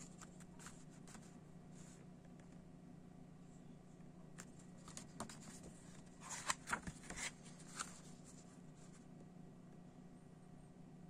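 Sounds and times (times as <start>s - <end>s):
paper page turning: 0.0s - 1.4s, 4.4s - 9.0s
faint steady hum: 0.0s - 11.0s.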